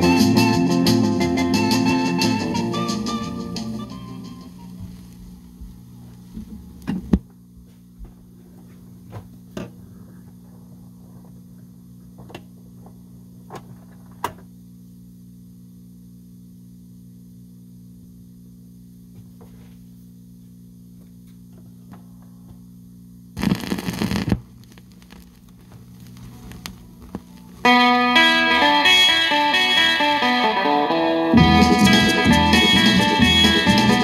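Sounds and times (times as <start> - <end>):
low electrical hum: 1.9 - 31.8
tonearm and record clicks: 23.4 - 27.7.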